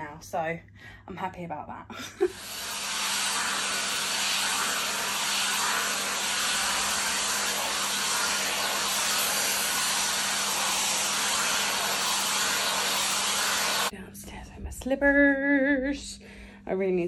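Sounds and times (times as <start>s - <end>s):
hot air styler blowing: 2.2s - 13.9s.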